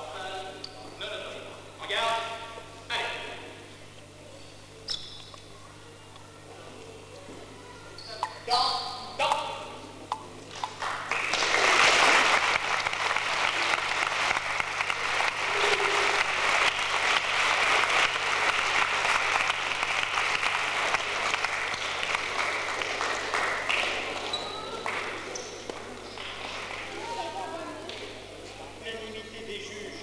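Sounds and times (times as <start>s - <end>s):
audience applauding: 10.5s - 28.1s.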